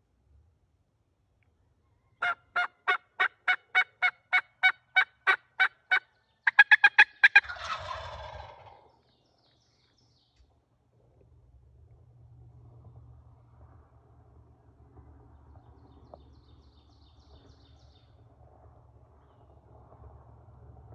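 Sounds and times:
turkey gobble: 0:02.2 - 0:08.9
turkeys yelping: 0:02.2 - 0:08.9.

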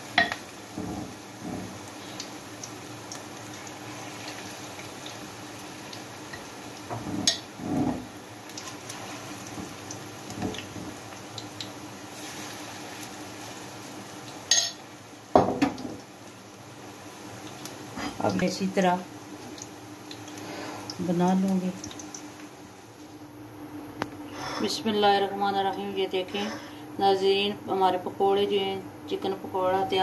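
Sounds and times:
food sizzling in oil: 0:00.0 - 0:23.1.

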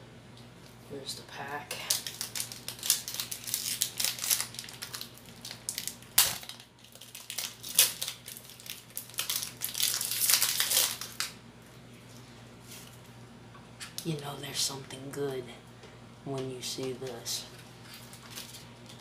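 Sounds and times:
foil wrapper crinkling: 0:01.7 - 0:11.4, 0:16.8 - 0:19.0.

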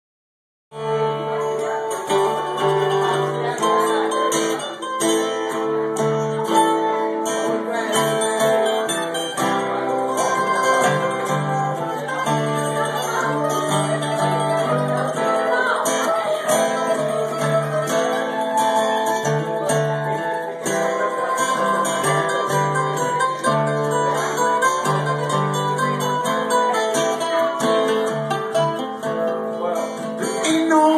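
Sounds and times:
acoustic guitar chords: 0:00.7 - 0:30.9
mandolin picking melody: 0:00.8 - 0:30.9.

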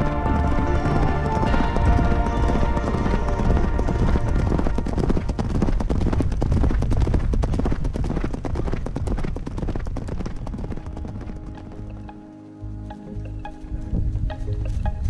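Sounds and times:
horse hoofbeats on sand: 0:00.0 - 0:12.2.

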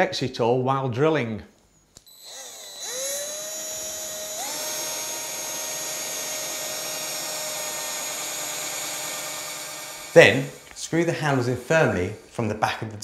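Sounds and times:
cordless drill drilling wood: 0:02.0 - 0:12.4.

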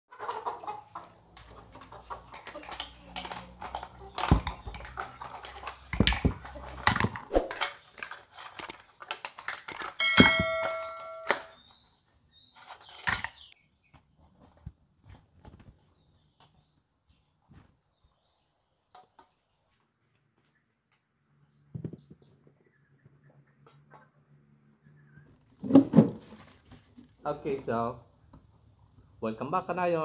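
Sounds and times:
metal wok ringing: 0:10.0 - 0:11.6.

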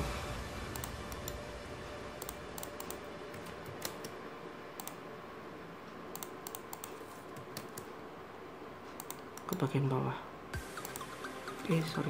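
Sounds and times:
computer keyboard typing: 0:00.7 - 0:01.4, 0:02.2 - 0:04.2, 0:04.8 - 0:05.0, 0:06.1 - 0:07.9, 0:09.0 - 0:09.7, 0:10.7 - 0:11.8.

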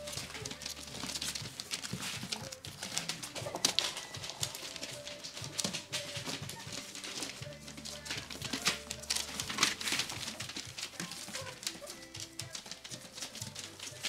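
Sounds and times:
puppies whimpering faintly: 0:00.0 - 0:07.6, 0:10.0 - 0:12.1
claws clicking on floor: 0:00.0 - 0:14.0
paper rustling: 0:00.0 - 0:14.0.

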